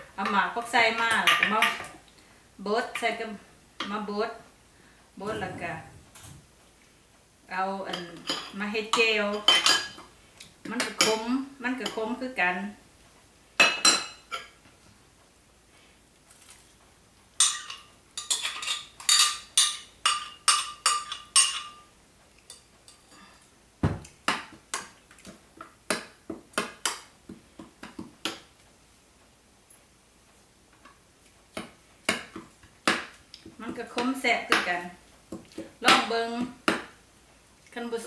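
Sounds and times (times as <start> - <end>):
dull knock: 23.8 - 24.1.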